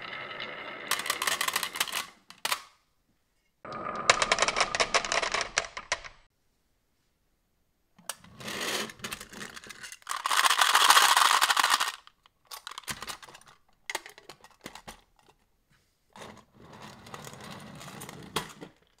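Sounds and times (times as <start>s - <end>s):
marbles clicking down wooden slope: 0.0s - 2.2s, 3.7s - 6.3s, 9.3s - 12.0s
marbles rattling in metal tin: 0.2s - 2.1s, 4.0s - 6.1s, 8.4s - 14.6s.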